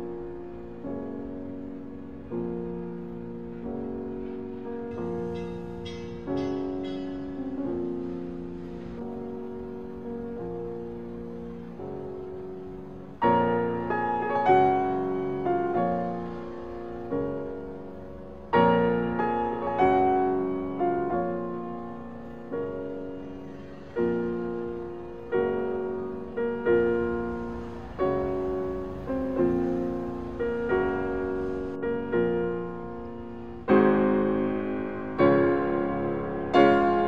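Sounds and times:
slow piano chords: 0:00.0 - 0:37.0.

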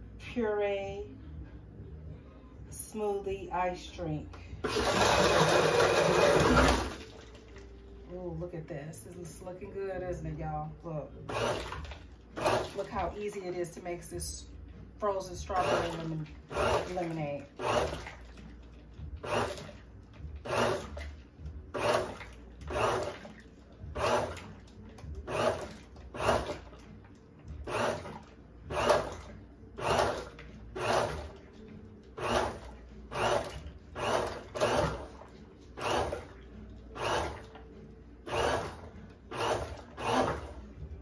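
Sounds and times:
blender pulsing on ice: 0:04.6 - 0:07.2, 0:11.3 - 0:11.8, 0:12.4 - 0:13.0, 0:15.4 - 0:18.1, 0:19.2 - 0:19.7, 0:20.5 - 0:21.0, 0:21.8 - 0:23.3, 0:23.9 - 0:24.5, 0:25.2 - 0:26.7, 0:27.6 - 0:29.2, 0:29.8 - 0:31.4, 0:32.2 - 0:35.2, 0:35.8 - 0:36.3, 0:37.0 - 0:37.5, 0:38.2 - 0:40.6.

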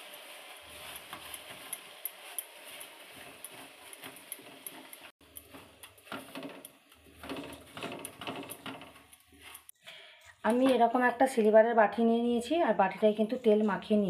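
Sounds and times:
spatula scraping sugar in pan: 0:00.0 - 0:09.8.

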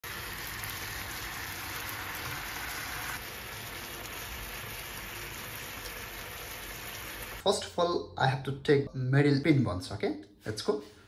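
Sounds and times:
sauce sizzling in a frying pan: 0:00.0 - 0:07.5.

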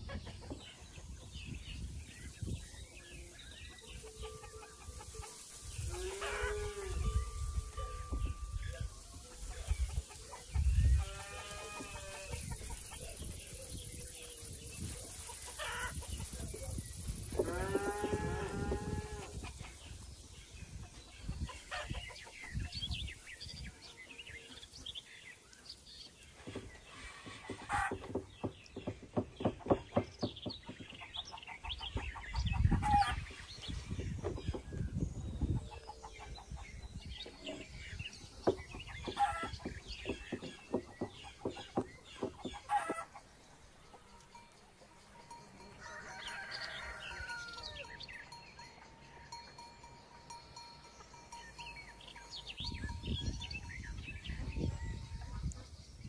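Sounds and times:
hens clucking: 0:03.7 - 0:07.0, 0:08.8 - 0:13.5, 0:14.8 - 0:16.8, 0:20.8 - 0:22.7, 0:26.5 - 0:28.2, 0:29.4 - 0:33.5, 0:38.5 - 0:44.4
rooster crowing: 0:45.7 - 0:47.9.

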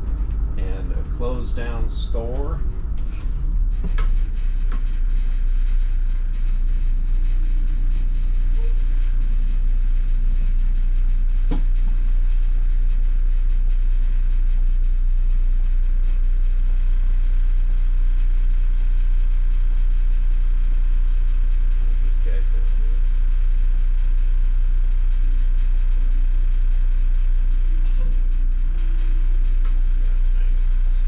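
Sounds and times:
bus engine rumbling: 0:00.0 - 0:05.3.

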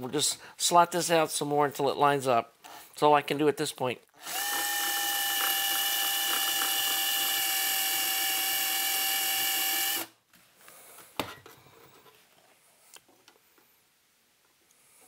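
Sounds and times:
power drill whining through metal: 0:04.2 - 0:10.2.

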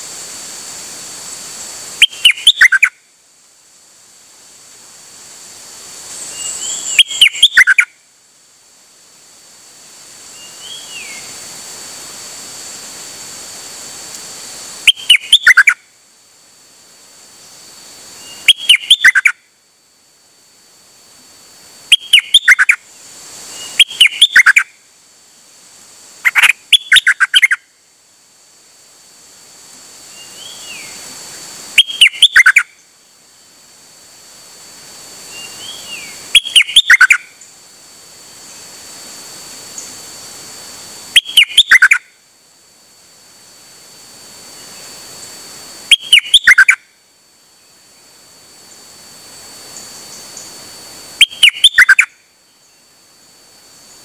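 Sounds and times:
high insect drone: 0:00.0 - 0:54.0
songbird singing bubbly phrases: 0:02.0 - 0:03.0, 0:06.3 - 0:07.9, 0:14.9 - 0:15.8, 0:18.2 - 0:19.4, 0:21.9 - 0:22.8, 0:23.5 - 0:24.7, 0:26.2 - 0:27.6, 0:31.8 - 0:32.7, 0:35.3 - 0:37.3, 0:41.2 - 0:42.0, 0:45.9 - 0:46.8, 0:51.2 - 0:52.1.

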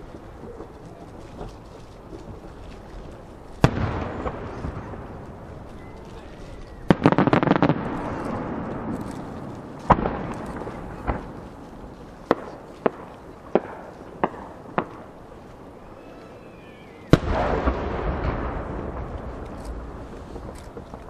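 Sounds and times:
firework bangs: 0:00.0 - 0:15.4, 0:17.1 - 0:21.0
firework cracks: 0:00.0 - 0:15.6, 0:17.1 - 0:21.0
firework main burst boom: 0:03.6 - 0:15.2, 0:17.1 - 0:21.0.

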